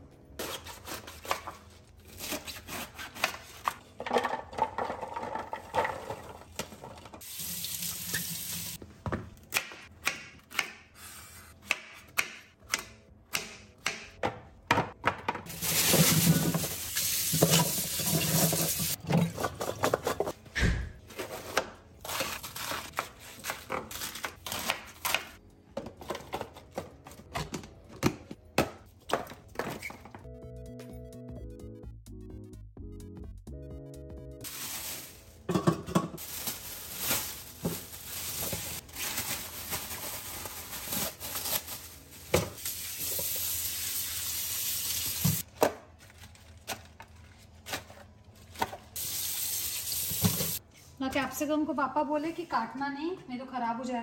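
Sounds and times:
plastic bag rustling: 15.5 - 19.0, 34.4 - 42.7.

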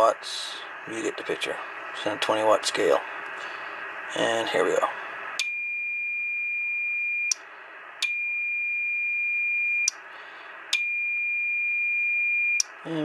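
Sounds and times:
radio hiss: 0.0 - 5.4.

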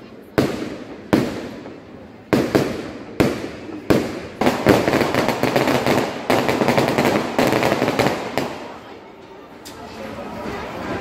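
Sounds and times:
fireworks crackling pops: 0.2 - 8.9
firework bangs echoing: 0.2 - 9.0.

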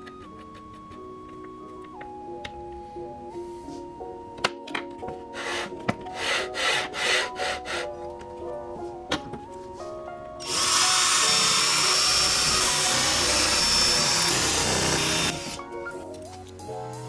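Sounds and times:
background music: 0.0 - 17.0
cordless drill drilling into metal: 10.4 - 15.6.

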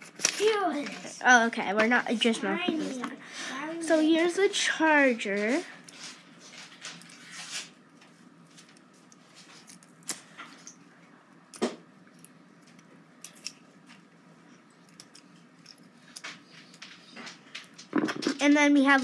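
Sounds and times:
cable clicks and rustles: 14.7 - 19.0.

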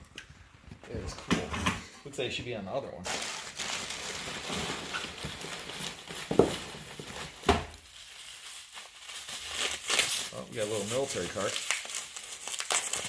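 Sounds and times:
paper wrapping rustling: 3.0 - 13.0.

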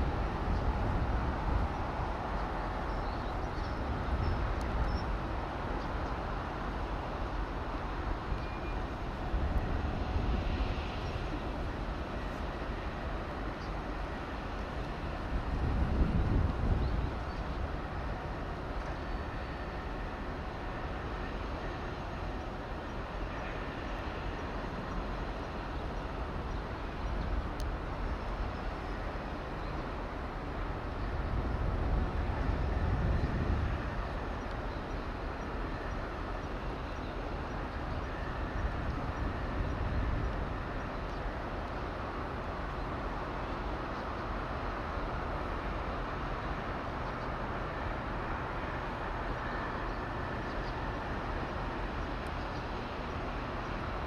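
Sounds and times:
outdoor background rumble: 0.0 - 54.0.

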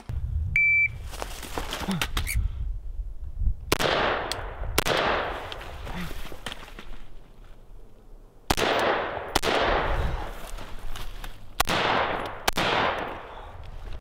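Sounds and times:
rifle shots echoing: 3.7 - 5.5, 8.5 - 10.4, 11.6 - 13.4.

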